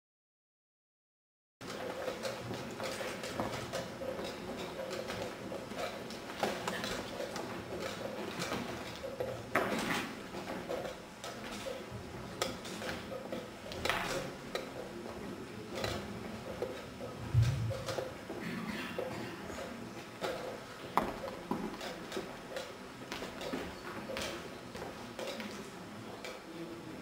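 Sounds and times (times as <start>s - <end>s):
heavy thump: 17.2s - 17.9s.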